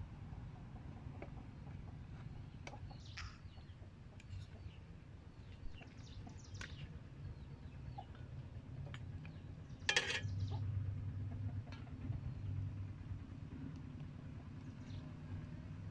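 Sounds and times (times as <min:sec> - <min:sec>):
bird calls: 0:01.4 - 0:08.3
metal spoon clinking on dishes: 0:09.9 - 0:10.4.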